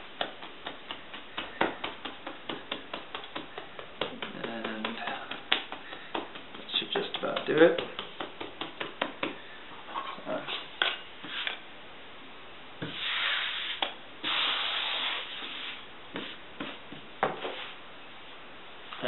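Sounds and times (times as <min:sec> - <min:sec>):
hand tapping bread dough: 0:00.0 - 0:09.6, 0:16.1 - 0:17.5
hand brushing flour on countertop: 0:10.2 - 0:11.6, 0:12.8 - 0:17.8.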